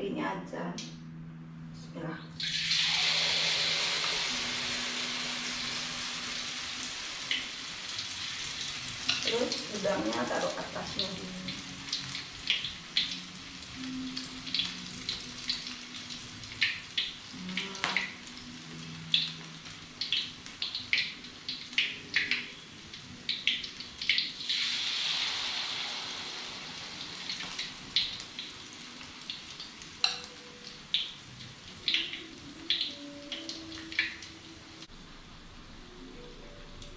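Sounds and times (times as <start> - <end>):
batter sizzling in hot oil: 2.4 - 34.3
oil popping and crackling: 14.2 - 18.5, 19.1 - 24.9, 27.1 - 34.4.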